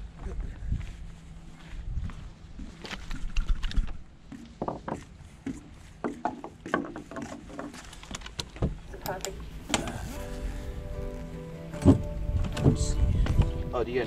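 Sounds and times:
clicks and knocks on wooden planks: 0:02.8 - 0:08.8.

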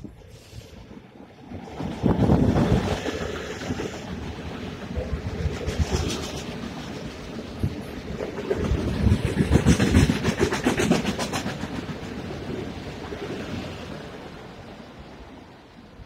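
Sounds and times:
train wheels clacking: 0:01.7 - 0:12.6.

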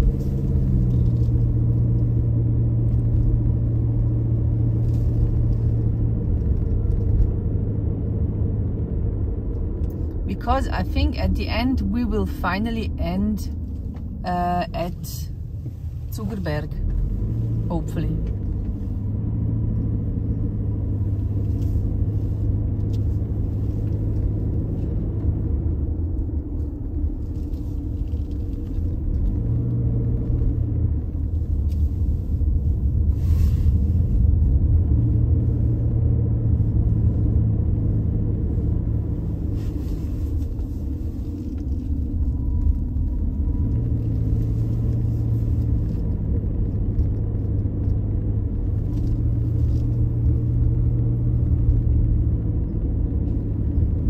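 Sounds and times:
car engine and road rumble: 0:00.0 - 0:54.0.

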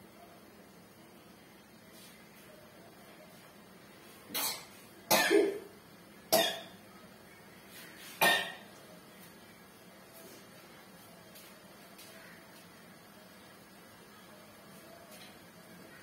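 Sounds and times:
person coughing: 0:04.4 - 0:05.7.

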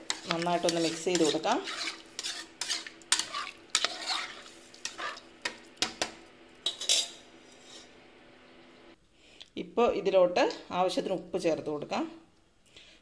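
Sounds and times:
metal ladle scraping a pot: 0:00.0 - 0:05.3, 0:06.6 - 0:08.0.

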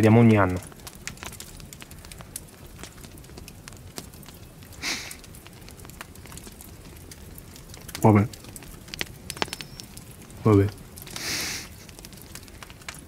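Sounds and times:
campfire crackling and popping: 0:00.0 - 0:13.0.

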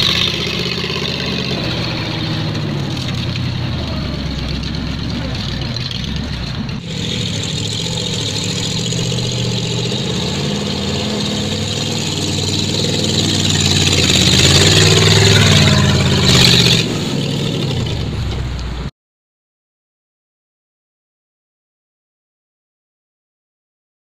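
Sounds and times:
tracked vehicle engine running: 0:00.0 - 0:18.9.

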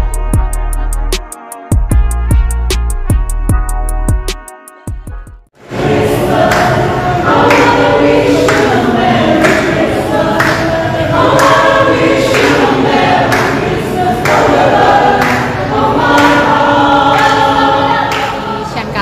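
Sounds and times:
mixed choir singing a carol: 0:05.6 - 0:19.0.

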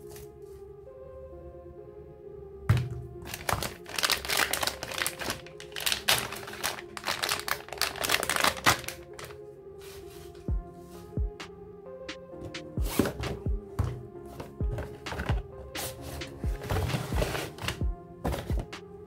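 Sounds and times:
background music: 0:00.0 - 0:19.0
plastic bag crinkling: 0:03.2 - 0:09.4.

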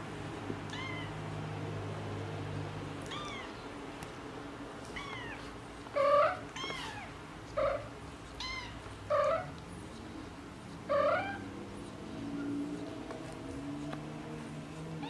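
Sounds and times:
cats meowing: 0:00.7 - 0:01.2, 0:03.0 - 0:03.7, 0:04.9 - 0:09.6, 0:10.8 - 0:11.6.

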